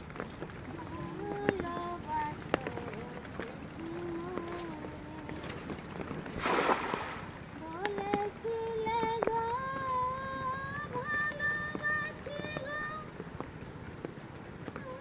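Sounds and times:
high singing voice: 0:00.7 - 0:05.6, 0:07.6 - 0:13.1
net splashing into water: 0:06.4 - 0:07.3.

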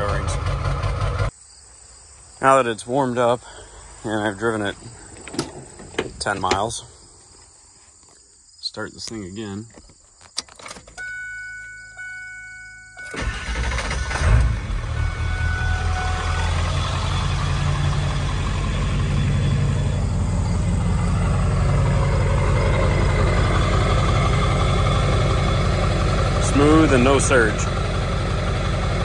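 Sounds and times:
diesel engine starting and idling: 0:00.0 - 0:01.3, 0:11.0 - 0:29.0.

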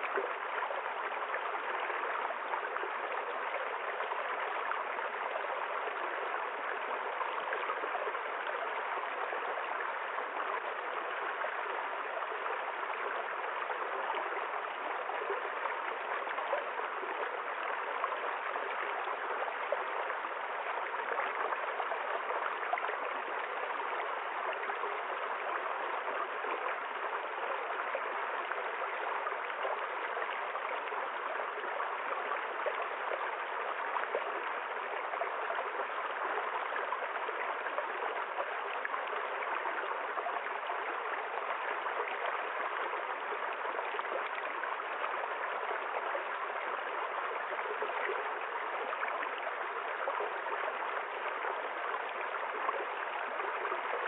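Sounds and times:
stream flowing over rocks: 0:00.0 - 0:54.0.

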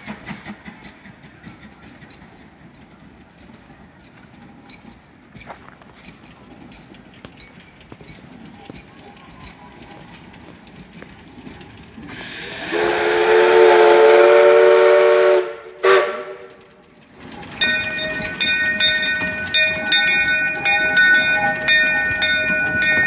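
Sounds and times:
train wheels clicking over rails: 0:00.0 - 0:23.0
steam hissing: 0:12.0 - 0:16.4
steam whistle blasts: 0:12.2 - 0:16.6.

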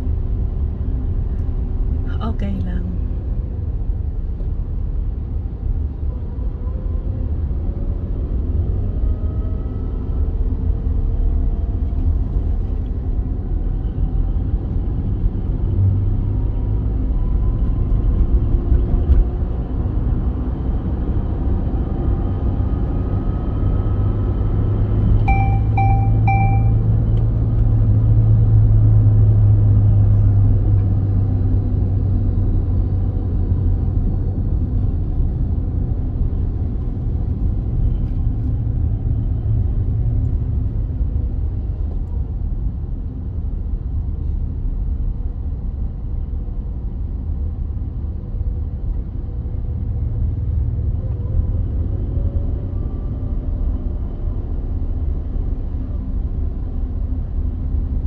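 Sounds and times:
car driving on motorway: 0:00.0 - 0:58.0
quick beeps: 0:25.3 - 0:26.9.

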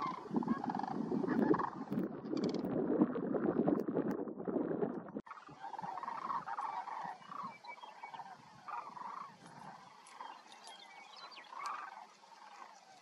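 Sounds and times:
cranes rattling calls: 0:00.0 - 0:02.6, 0:05.3 - 0:13.0
small bird chirping: 0:05.3 - 0:13.0.

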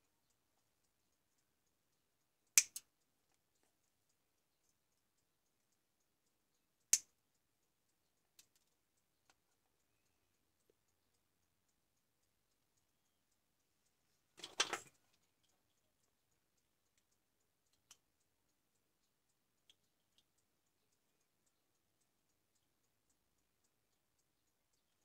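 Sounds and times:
faint clicks: 0:00.0 - 0:25.0
clatter of knocks and rattles: 0:14.4 - 0:15.0.

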